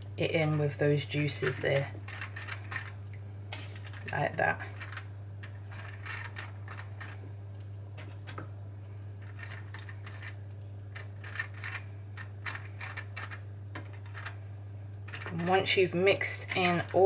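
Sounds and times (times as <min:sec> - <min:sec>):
steady low hum: 0:00.0 - 0:17.0
metal spoon scraping a tray: 0:03.6 - 0:07.2, 0:09.2 - 0:10.4, 0:15.1 - 0:17.0.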